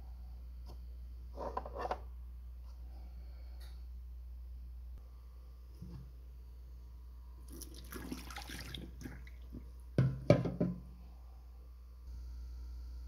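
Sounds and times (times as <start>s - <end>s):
water splashing into steel sink: 7.5s - 9.7s.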